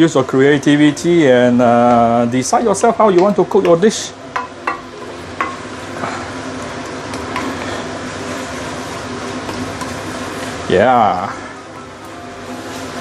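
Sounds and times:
noodles sizzling in a pan: 0.0s - 13.0s
spatula knocking against pan: 3.2s - 5.6s.

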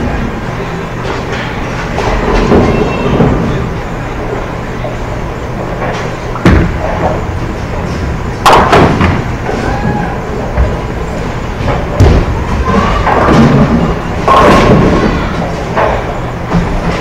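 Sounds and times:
bowling machinery rumble and hum: 0.0s - 17.0s
bowling ball striking pins: 8.0s - 9.6s, 11.6s - 17.0s.

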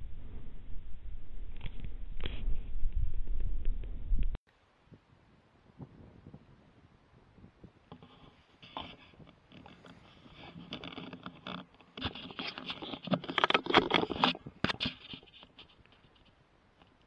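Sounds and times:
scratchy rustling: 7.9s - 17.0s.

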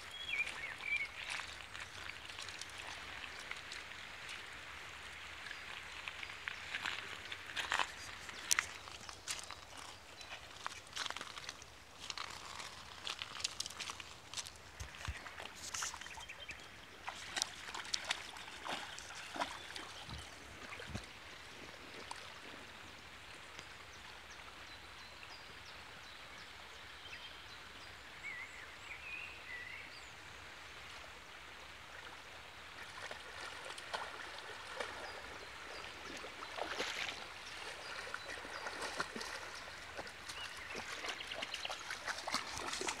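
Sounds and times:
river running over stones: 0.0s - 26.0s, 28.0s - 43.0s
dog splashing through water: 17.0s - 21.0s, 32.8s - 43.0s.

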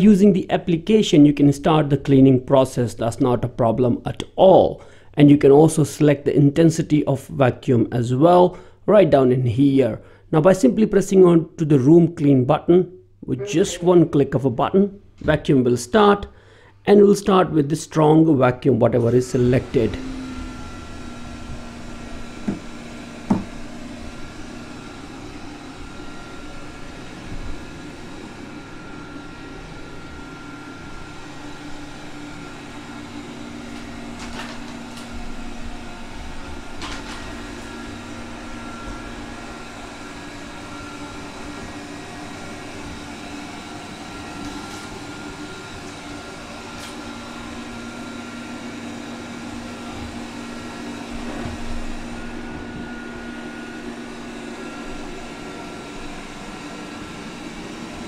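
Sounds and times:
robot vacuum motor hum: 19.4s - 58.0s.

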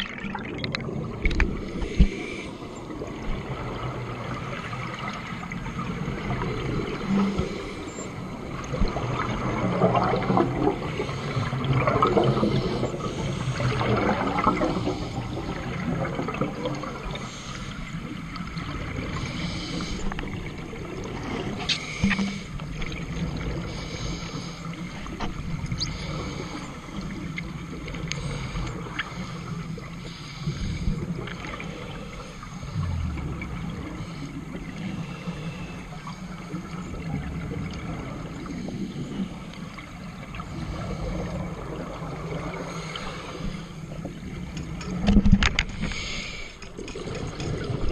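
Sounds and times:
sharp underwater clicks: 0.0s - 2.2s, 21.6s - 23.0s
underwater regulator bubbles gurgling: 0.0s - 47.9s.

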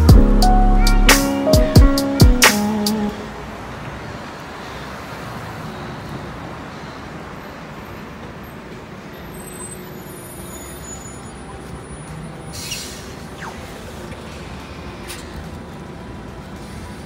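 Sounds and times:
cars driving by: 0.0s - 17.0s
bus driving by: 2.5s - 17.0s.

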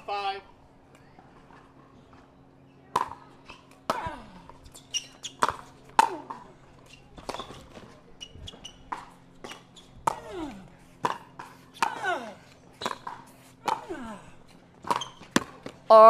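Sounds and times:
pickleball ball popping off paddles: 2.9s - 6.5s, 7.1s - 7.9s, 12.8s - 13.9s, 14.8s - 15.9s.

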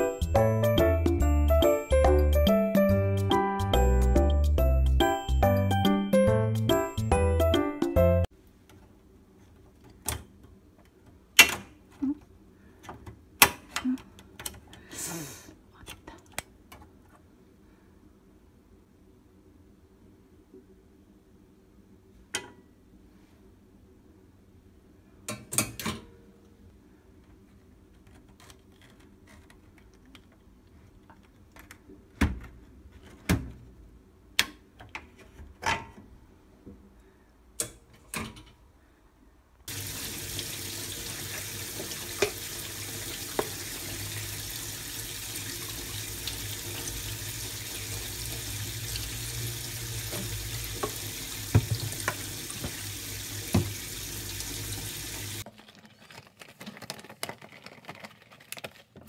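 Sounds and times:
tap water running into sink: 39.7s - 55.4s.

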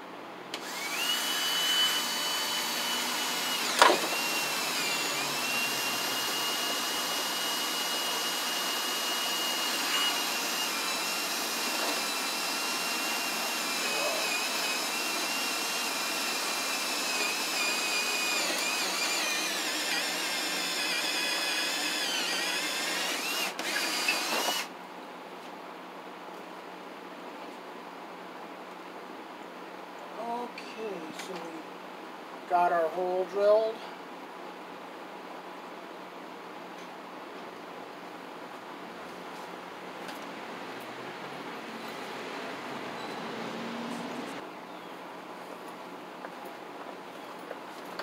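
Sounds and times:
drill boring with high whine: 0.6s - 24.7s.

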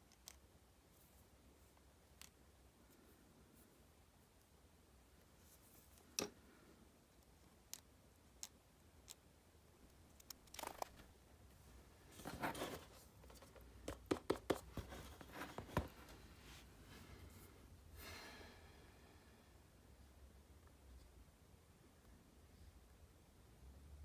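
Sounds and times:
rustling: 10.0s - 13.8s
sharp clicks and taps: 13.3s - 14.9s.

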